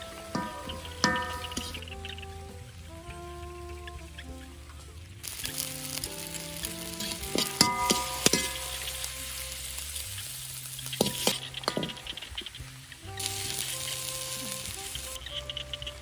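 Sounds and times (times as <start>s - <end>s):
food sizzling in hot oil: 0.0s - 2.0s, 5.2s - 16.0s
metal ladle clinking on wok: 0.3s - 1.8s, 7.4s - 8.7s, 11.0s - 12.2s.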